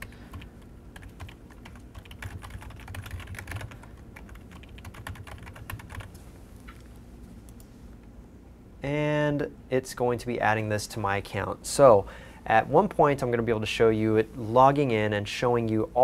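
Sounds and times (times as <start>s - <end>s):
typing on a computer keyboard: 0.0s - 6.2s.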